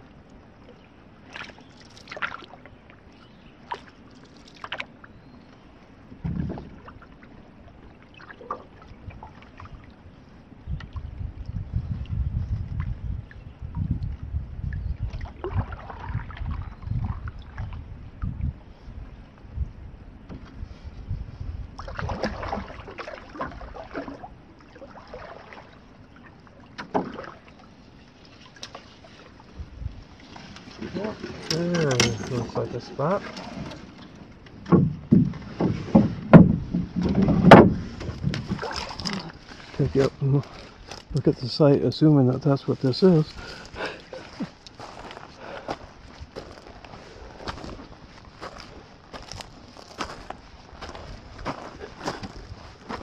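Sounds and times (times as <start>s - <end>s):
paddle splashes and drips: 0.0s - 19.4s, 21.7s - 41.2s
low thud: 6.2s - 6.8s, 34.6s - 38.6s.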